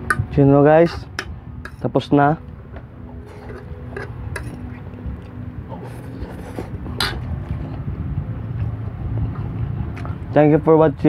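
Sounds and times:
steady low rumble: 0.0 - 11.0
fork scraping on ceramic plate: 3.2 - 4.8.

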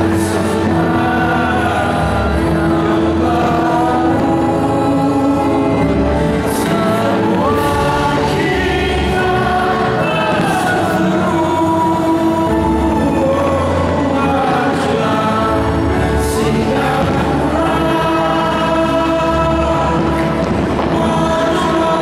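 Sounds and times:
accompanying music: 0.0 - 22.0
choir and crowd singing: 0.0 - 22.0
fireworks crackling: 6.4 - 11.6, 16.4 - 22.0.

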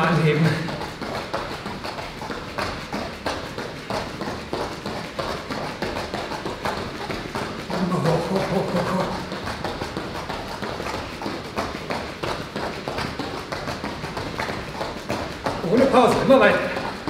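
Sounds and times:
person's voice: 0.0 - 0.7, 7.7 - 9.3, 15.6 - 16.8
bare feet thudding on mats: 0.4 - 17.0.

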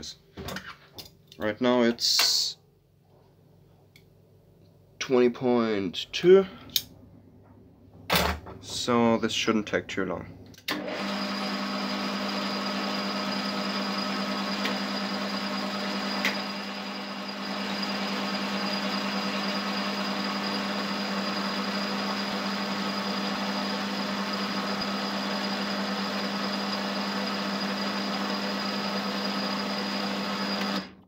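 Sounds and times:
metal lathe humming: 10.7 - 31.0.

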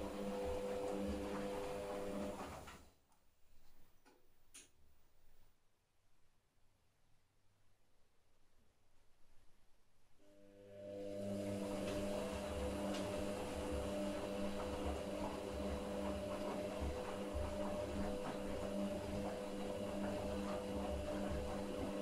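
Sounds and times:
washing machine motor humming: 0.0 - 2.9, 10.3 - 22.0
wet laundry sloshing: 11.5 - 22.0.

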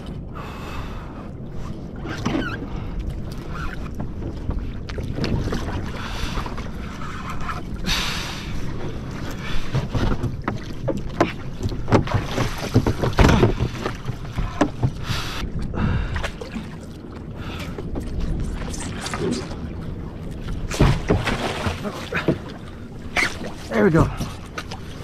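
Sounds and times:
water washing against kayak hull: 0.0 - 25.0
wind buffeting microphone: 0.0 - 25.0.

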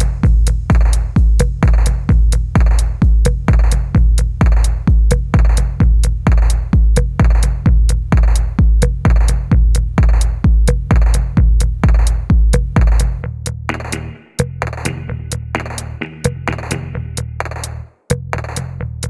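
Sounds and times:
electronic music with drum machine: 0.0 - 19.0
heavy bass kicks: 0.0 - 19.0
sharp clicking hits: 8.1 - 17.8.

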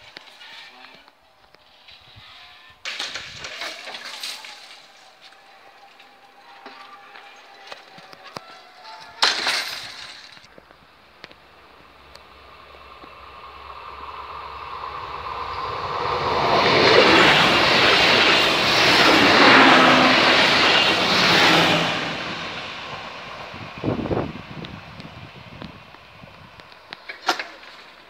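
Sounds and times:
train passing: 10.4 - 28.0.

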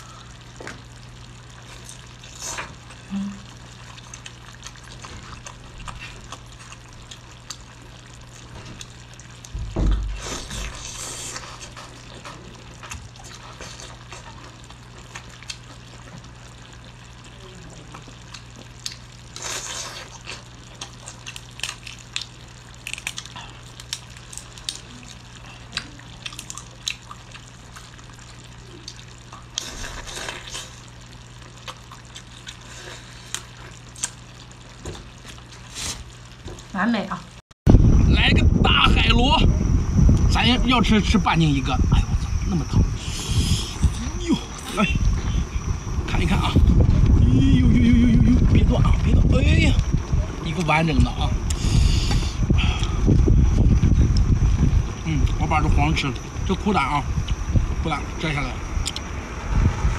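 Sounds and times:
chewing: 3.8 - 7.7, 10.1 - 16.3, 17.7 - 30.8, 31.4 - 34.5
loud thump: 9.6 - 10.2.

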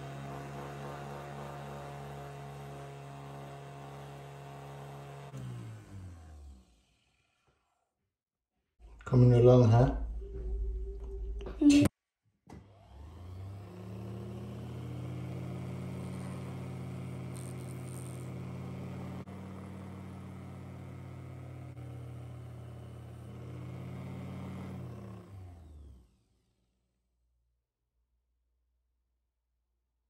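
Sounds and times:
small electric lathe motor hum: 0.0 - 7.7, 12.6 - 26.3.

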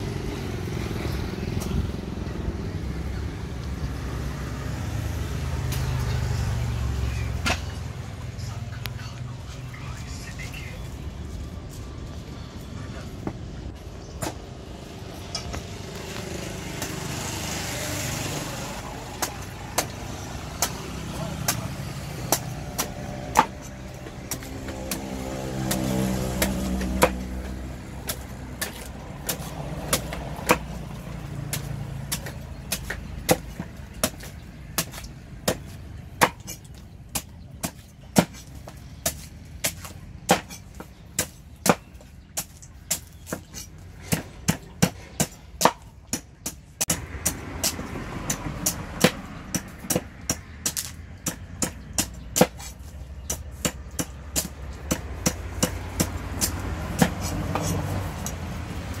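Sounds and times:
cleaver chopping coconut husk: 15.5 - 59.0.

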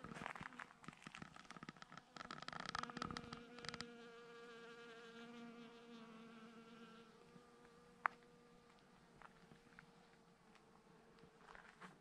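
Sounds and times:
insect buzzing: 2.1 - 8.4.

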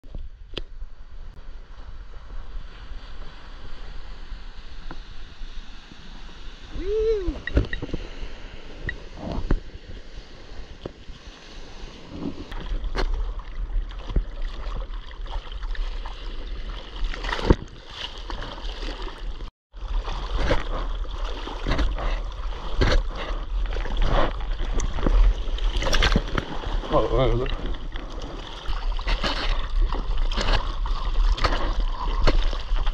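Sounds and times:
low rumble of water: 0.0 - 32.9
ocean surf: 1.4 - 12.5
water splashing on camera: 12.1 - 32.9.

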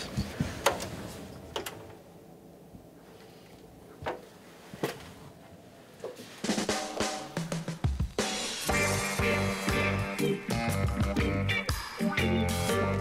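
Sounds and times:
band playing with drums: 6.4 - 12.0.

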